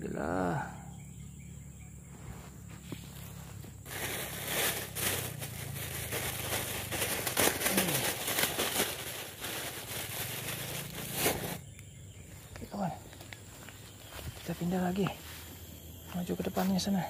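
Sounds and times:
plastic bag crinkling: 3.3s - 11.7s.

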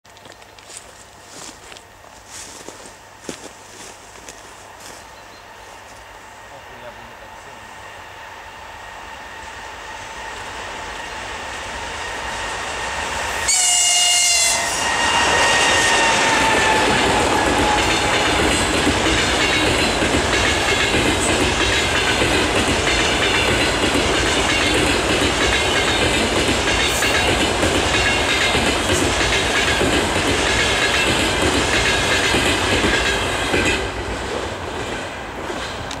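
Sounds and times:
train rolling past with wheel clatter: 0.1s - 36.0s
train horn blast: 13.4s - 18.8s.

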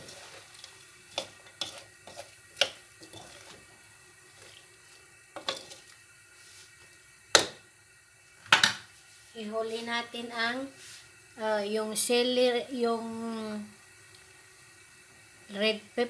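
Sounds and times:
spatula scraping a wok: 0.0s - 7.6s
faint sizzle: 0.0s - 16.0s.

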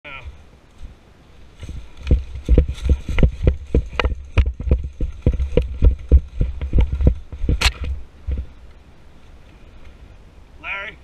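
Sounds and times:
running footsteps on leaves and gravel: 0.7s - 8.6s.

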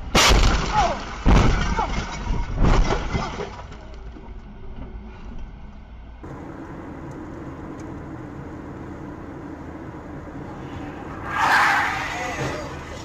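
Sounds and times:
car crash impacts: 0.0s - 3.9s
debris striking car: 0.0s - 4.2s
car cruising on highway hum: 5.6s - 13.0s.

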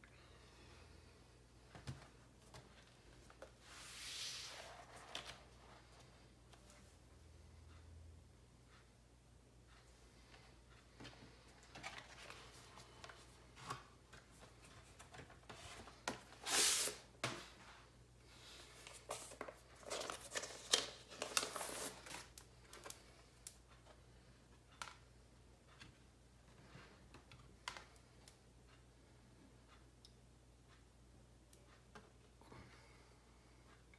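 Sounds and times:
paper sleeve rustling: 16.4s - 17.0s, 18.8s - 22.3s.

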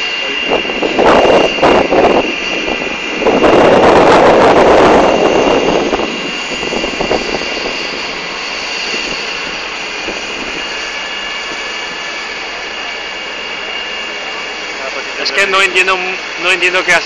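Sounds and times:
engine and rotor noise: 0.0s - 17.0s
helicopter turbine whine: 0.0s - 17.0s.

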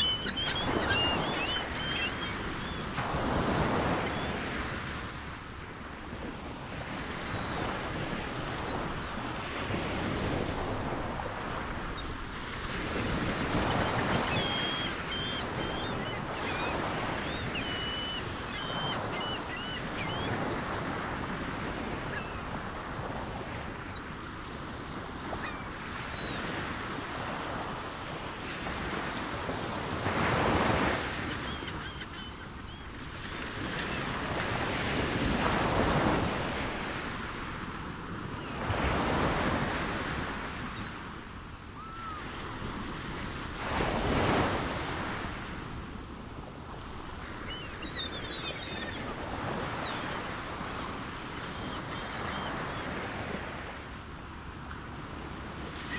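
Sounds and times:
faint bird calls: 0.0s - 4.4s, 12.0s - 20.8s, 30.5s - 34.2s, 41.8s - 42.4s, 47.4s - 53.3s.

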